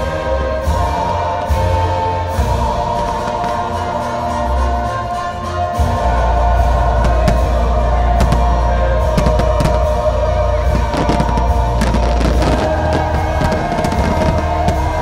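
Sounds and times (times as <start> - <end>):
loud show soundtrack music: 0.0 - 15.0
firework shells bursting: 6.8 - 15.0.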